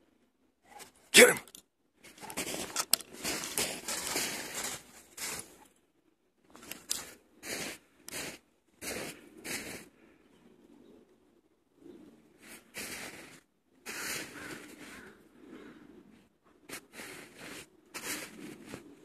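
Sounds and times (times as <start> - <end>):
snow crunching: 2.1 - 5.7, 16.7 - 19.0
snow scraping: 2.4 - 5.6, 16.7 - 19.0.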